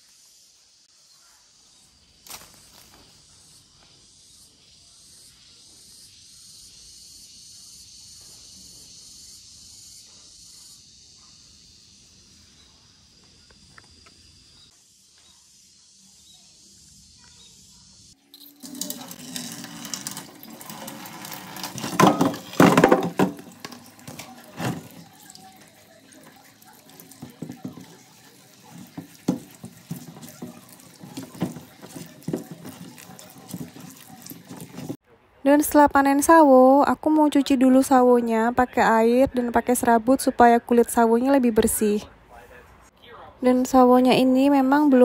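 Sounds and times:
insect chirring: 0:00.0 - 0:35.0
fruit splashing and clattering: 0:18.4 - 0:35.0
tap running into steel sink: 0:18.4 - 0:35.0.

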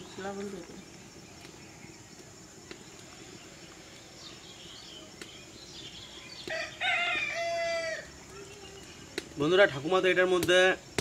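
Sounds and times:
faint high bird chirps: 0:00.0 - 0:09.2
rooster crowing: 0:06.4 - 0:08.1.

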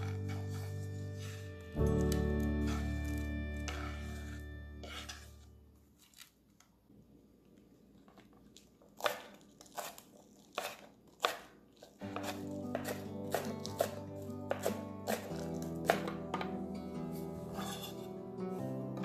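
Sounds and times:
knife chopping on cutting board: 0:10.6 - 0:16.5, 0:17.6 - 0:18.0.

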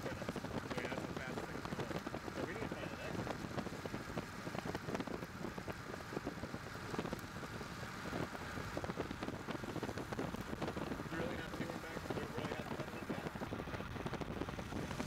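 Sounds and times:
rain crackling on microphone: 0:00.0 - 0:15.0
wind on microphone: 0:00.0 - 0:15.0.

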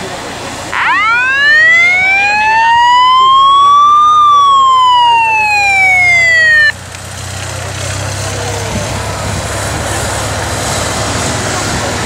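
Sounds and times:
motorcycle siren wailing: 0:00.7 - 0:06.8.

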